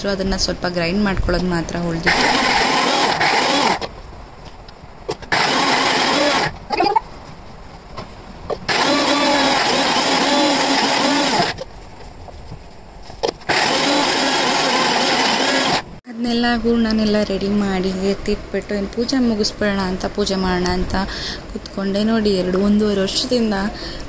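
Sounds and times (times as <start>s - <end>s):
electric mixer grinder grinding: 2.0s - 3.9s, 5.1s - 6.6s, 8.7s - 11.6s, 13.4s - 16.0s.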